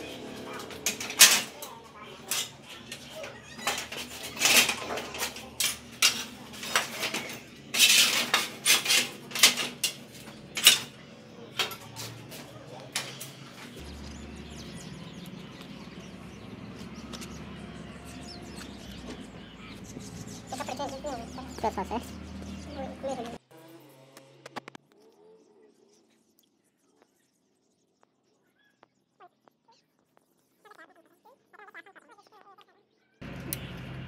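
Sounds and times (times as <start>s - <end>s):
bicycle clanking and rattling: 0.0s - 19.8s.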